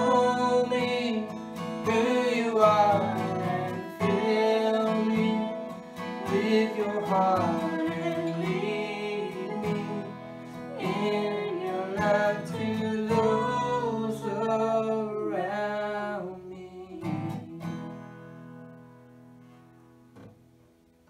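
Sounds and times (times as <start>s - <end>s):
acoustic guitar strumming: 0.0s - 21.0s
woman singing: 6.2s - 17.8s.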